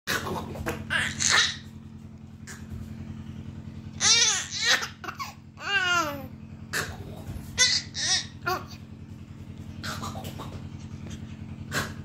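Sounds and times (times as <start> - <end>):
low hum: 0.1 - 12.0
baby laughing and squealing: 0.8 - 1.6, 4.0 - 6.3, 7.6 - 8.8.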